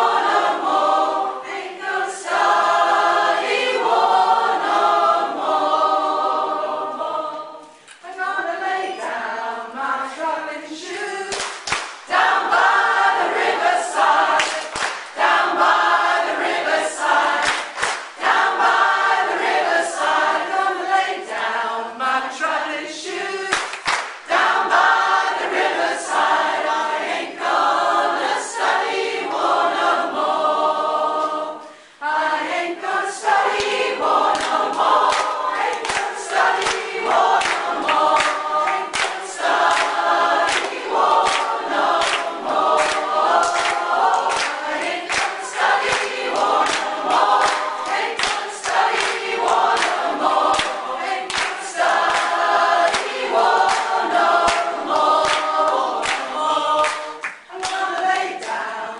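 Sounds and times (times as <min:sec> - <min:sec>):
choir singing: 0:00.0 - 0:58.9
hands clapping on a beat: 0:11.0 - 0:20.2, 0:23.4 - 0:27.2, 0:33.2 - 0:58.6.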